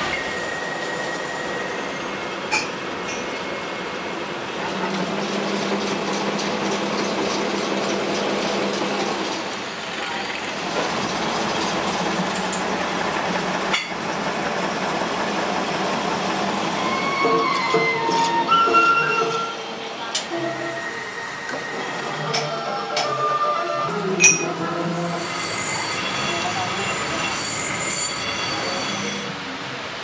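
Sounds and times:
metal lathe running: 0:04.4 - 0:18.2, 0:24.2 - 0:29.3.

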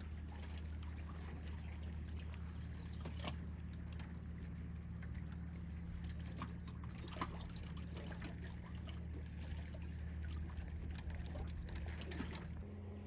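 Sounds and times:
small waves lapping against dock: 0:00.0 - 0:12.8
steady low hum: 0:00.0 - 0:13.0.

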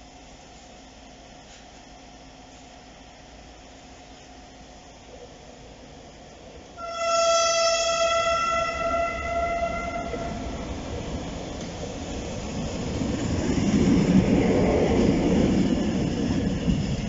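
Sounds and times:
diesel locomotive engine rumble: 0:00.0 - 0:17.0
locomotive horn: 0:06.8 - 0:10.6.

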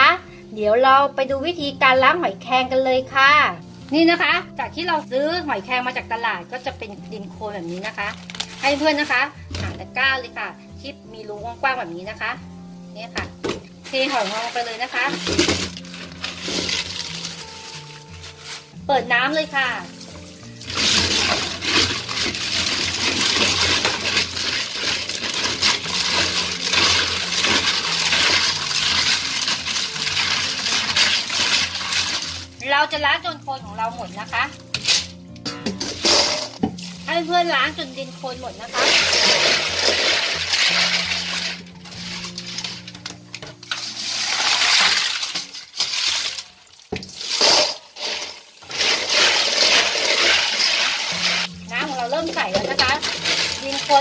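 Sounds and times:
tap water splashing: 0:43.0 - 0:51.1
tap water splashing into sink: 0:44.4 - 0:48.3.

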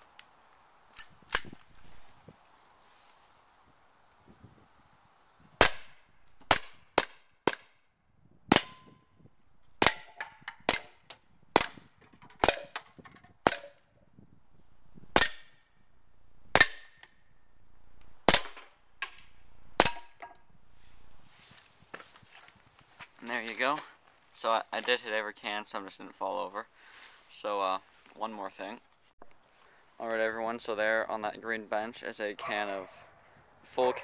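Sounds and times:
bb pistol shots: 0:05.6 - 0:07.7, 0:08.5 - 0:08.9, 0:09.8 - 0:11.8, 0:12.4 - 0:12.8, 0:15.1 - 0:15.5, 0:18.2 - 0:20.2
tin cans being hit: 0:11.6 - 0:12.8.

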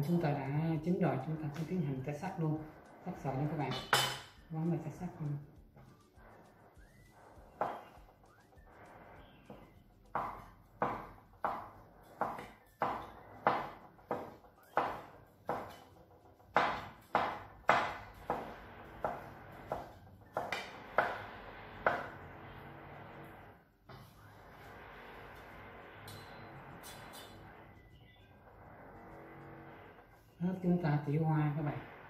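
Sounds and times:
kitchen knife chopping: 0:07.5 - 0:08.0, 0:09.4 - 0:22.2.

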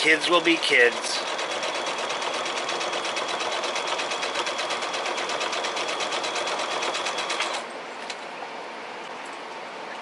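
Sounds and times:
sewing machine running: 0:00.0 - 0:07.7.

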